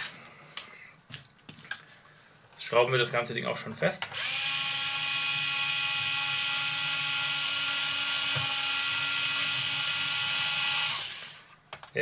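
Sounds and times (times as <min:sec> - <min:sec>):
cordless screwdriver whine: 0:04.1 - 0:11.5.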